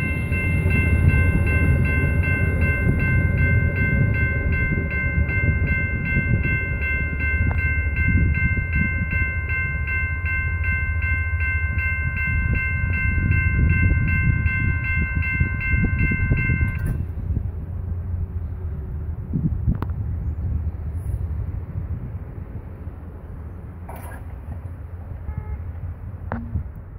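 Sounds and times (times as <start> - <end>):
railway crossing bell ringing: 0.0 - 17.4.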